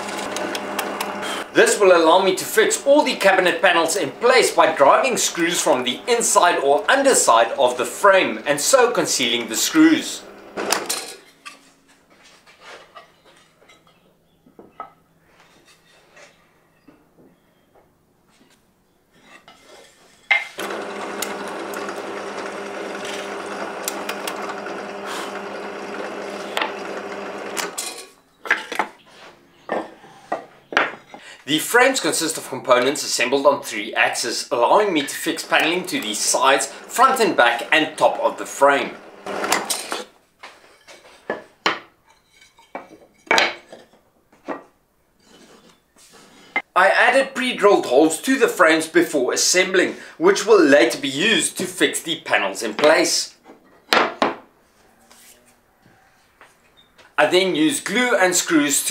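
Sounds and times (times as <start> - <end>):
drill press drilling wood: 0.0 - 1.8, 9.5 - 10.9, 20.6 - 27.8, 35.5 - 40.0
wood lengths knocking and clattering: 42.5 - 44.7.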